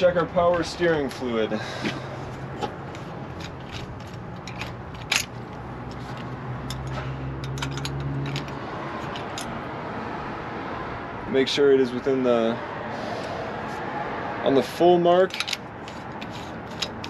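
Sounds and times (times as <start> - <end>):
plastic cap clicks and scrapes: 15.4 - 17.0.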